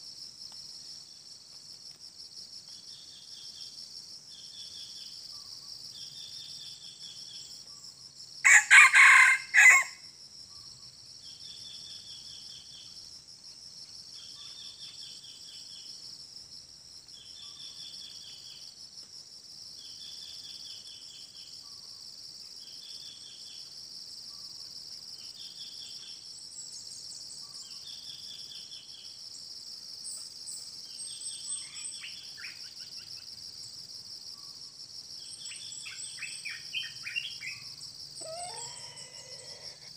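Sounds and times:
insects droning: 0.0s - 39.9s
rooster crowing: 8.4s - 10.0s, 38.2s - 39.9s
short insect chirps: 35.2s - 39.9s.

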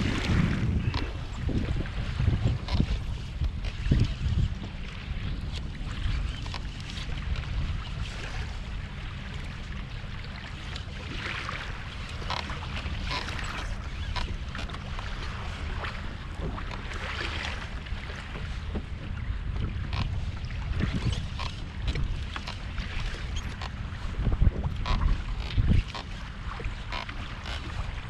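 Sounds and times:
wind buffeting microphone: 0.0s - 10.2s, 11.0s - 28.0s
short water splashes: 0.0s - 28.0s
water lapping against a hull: 0.0s - 28.0s.

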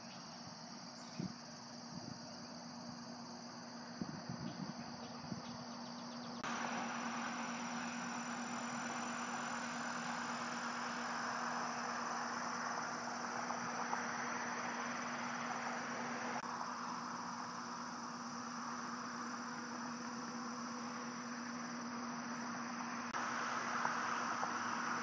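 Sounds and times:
low steady hum: 0.0s - 25.0s
even hiss: 6.4s - 25.0s.

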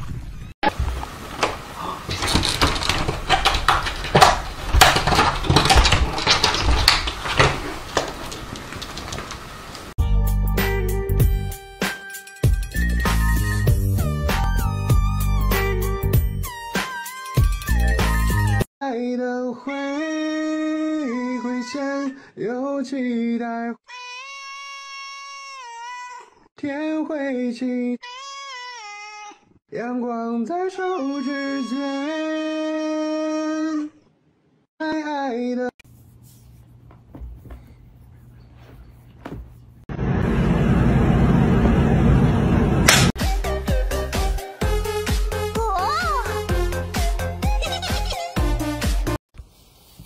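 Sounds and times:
claws scraping on door: 1.3s - 9.9s
person singing unaccompanied: 18.8s - 23.8s, 29.7s - 34.0s.

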